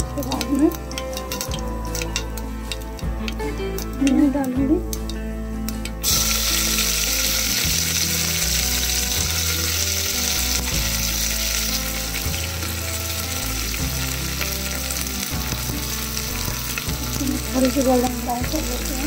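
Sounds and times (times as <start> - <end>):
onions sizzling in hot oil: 5.8 - 19.0.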